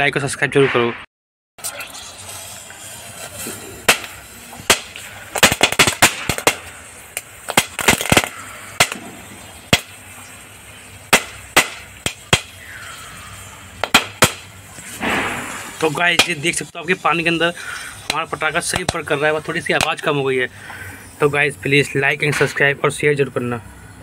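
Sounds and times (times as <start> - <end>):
firecracker popping: 1.6 - 17.2, 17.8 - 20.2
steady hiss: 1.6 - 23.9.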